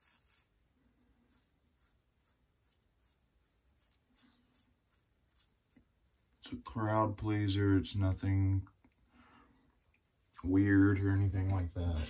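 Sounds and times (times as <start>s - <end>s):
razor blade scratching stubble: 1.3s - 6.4s.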